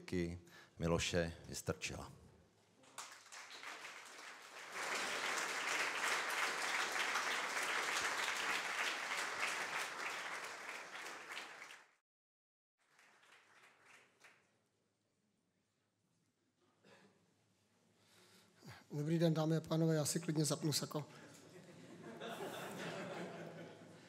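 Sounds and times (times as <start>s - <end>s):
audience applauding: 2.8s - 12.0s, 12.8s - 14.5s.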